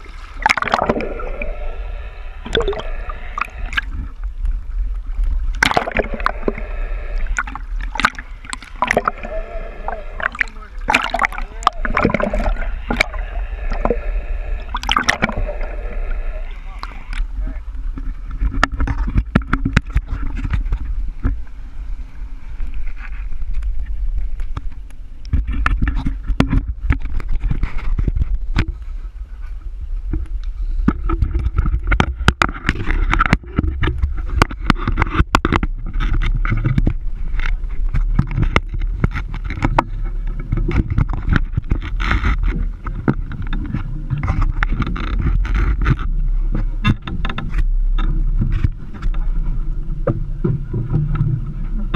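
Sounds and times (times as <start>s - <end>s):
outboard engines droning: 0.0s - 18.5s
wind on microphone: 0.0s - 51.9s.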